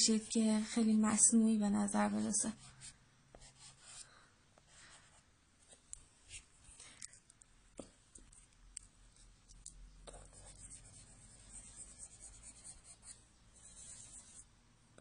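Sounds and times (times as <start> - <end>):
eraser rubbing on paper: 10.3 - 14.4.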